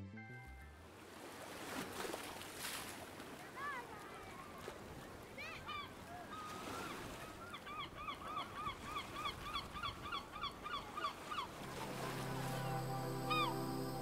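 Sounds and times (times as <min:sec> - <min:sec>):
seagulls squawking: 0:07.5 - 0:14.0.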